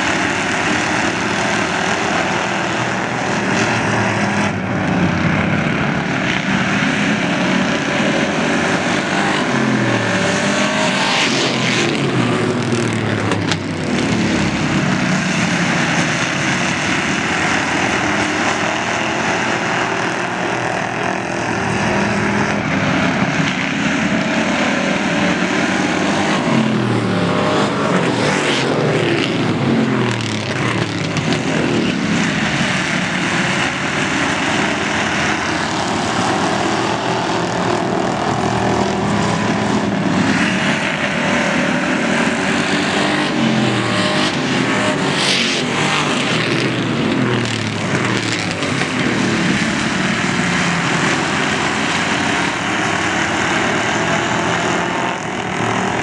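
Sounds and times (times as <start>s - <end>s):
race car engines passing by: 0.0s - 56.0s.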